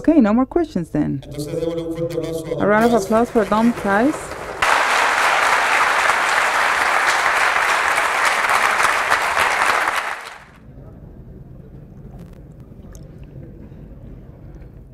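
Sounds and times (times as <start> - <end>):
audience applause: 2.6 - 10.6.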